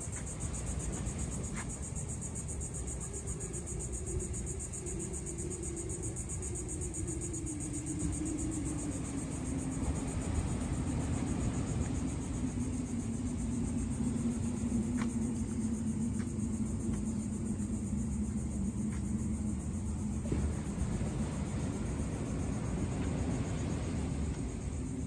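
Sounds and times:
distant engine hum: 0.0s - 25.0s
low rumble: 7.7s - 25.0s.

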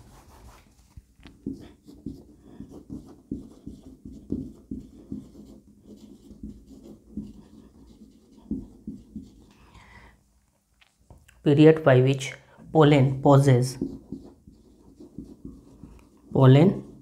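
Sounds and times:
marker writing on whiteboard: 1.2s - 9.8s, 12.9s - 17.0s.

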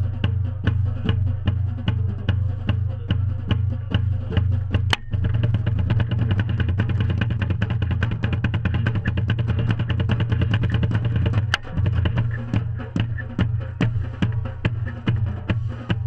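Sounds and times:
low rumble: 0.0s - 16.0s
marching drumline playing: 0.0s - 16.0s
sharp knocks: 4.8s - 15.4s.

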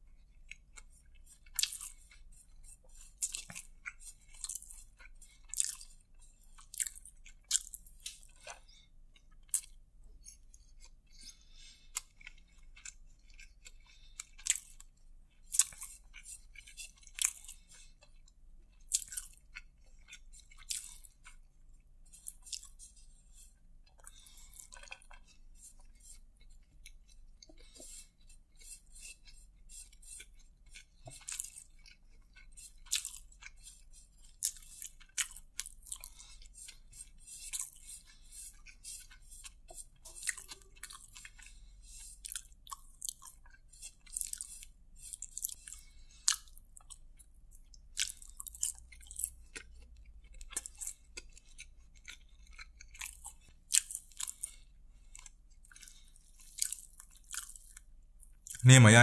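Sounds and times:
person chewing rice: 0.0s - 59.0s.

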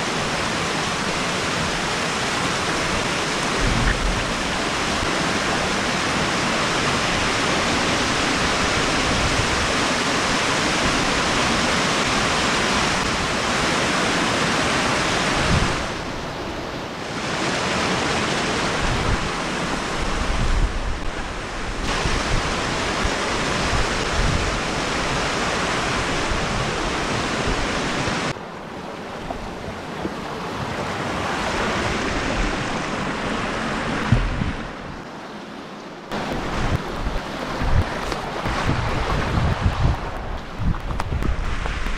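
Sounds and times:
waterfall pouring over rocks: 0.0s - 16.1s, 17.1s - 28.4s.

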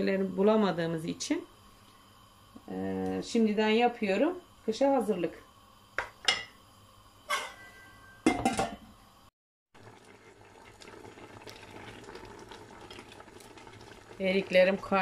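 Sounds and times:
fruit simmering in a pot: 0.0s - 8.2s, 8.9s - 15.0s
cooking pot knocks and clinks: 7.3s - 8.8s.

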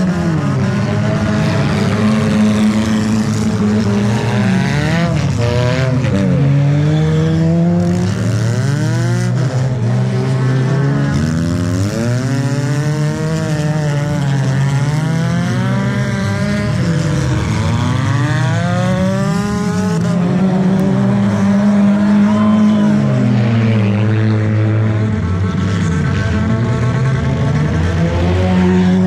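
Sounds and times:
race car engines revving: 0.0s - 29.0s.

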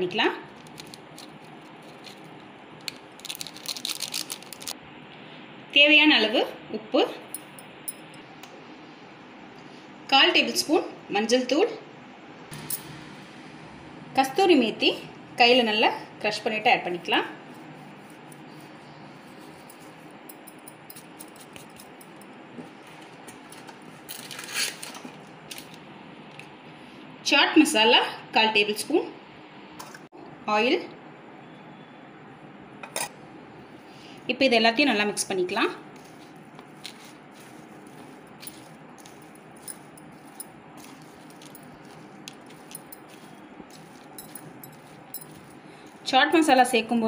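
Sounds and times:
spoon stirring food in bowl: 35.9s - 46.8s
spoon clinking against bowl: 36.8s - 46.0s.

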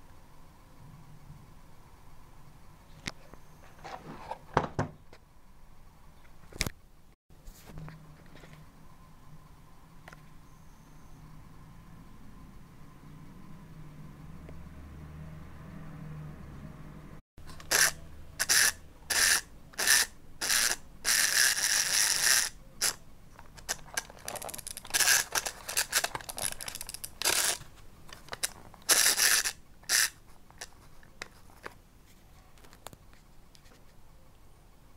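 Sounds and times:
clockwork toy gears ratcheting: 17.5s - 23.0s, 23.6s - 27.6s, 28.4s - 30.2s.

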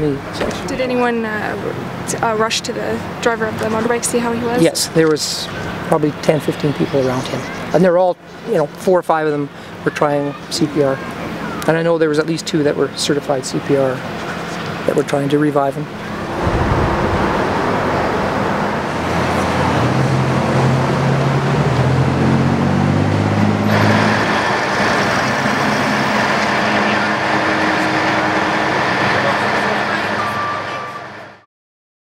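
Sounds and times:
vehicles passing on street: 0.0s - 31.4s
engine humming: 15.8s - 31.3s.

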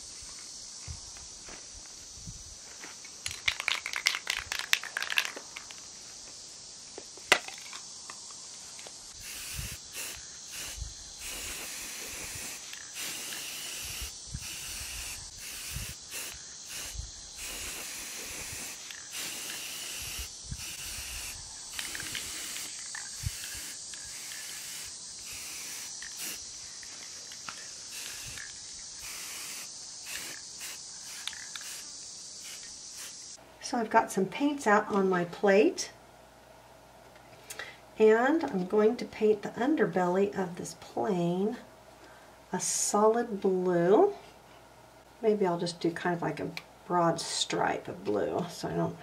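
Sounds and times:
spray can ball rattling: 3.2s - 5.8s, 9.2s - 33.2s
spray paint hissing: 3.2s - 5.8s, 7.6s - 33.4s
spray can click: 31.1s - 31.8s.

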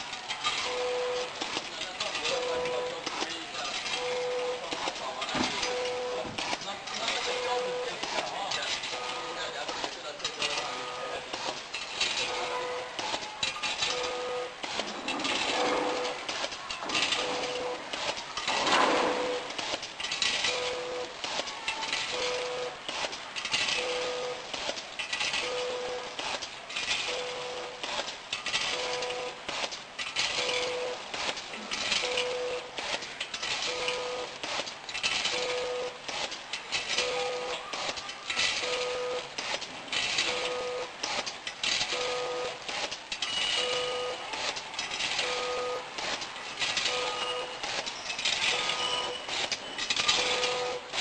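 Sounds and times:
machine clicks and clatter: 0.0s - 51.0s
machine hum: 10.4s - 34.4s.

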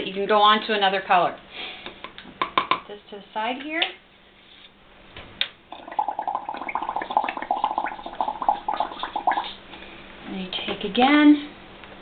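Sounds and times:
bubbling through a straw: 5.7s - 9.6s.

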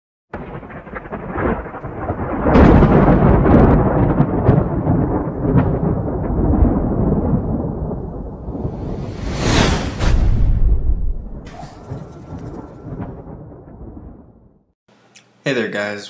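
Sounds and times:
thunder rumbling: 0.3s - 14.8s
rain: 0.4s - 9.0s, 11.6s - 14.0s.

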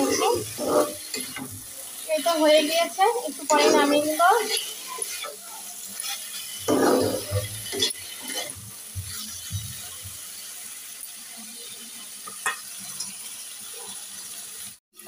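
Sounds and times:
metal spatula scraping wok: 0.0s - 9.5s.

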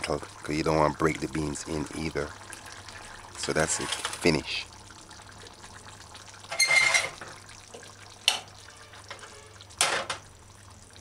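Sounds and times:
spoon scraping and clinking on pot: 6.5s - 7.2s.

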